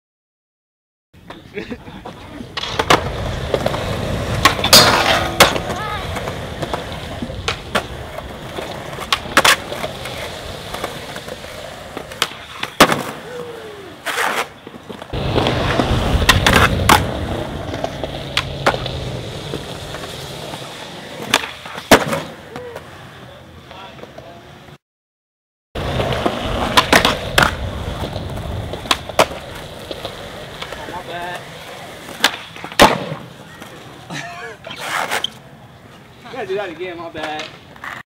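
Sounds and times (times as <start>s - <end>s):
skateboard wheels rolling on concrete: 1.2s - 24.8s, 25.8s - 38.0s
skateboard popping and landing: 2.0s - 23.0s, 25.8s - 34.0s.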